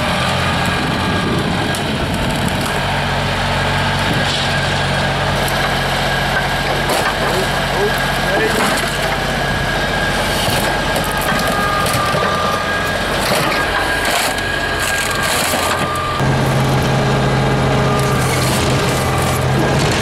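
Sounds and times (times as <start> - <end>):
excavator diesel engine: 0.0 - 20.0
high metal squeals: 3.7 - 20.0
sheet metal crunching: 18.0 - 20.0.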